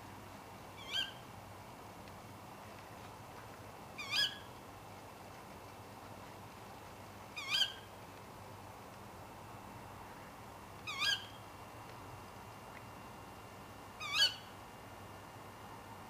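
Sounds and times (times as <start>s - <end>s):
owl contact calls: 0.8s - 1.2s, 4.0s - 4.5s, 7.4s - 7.8s.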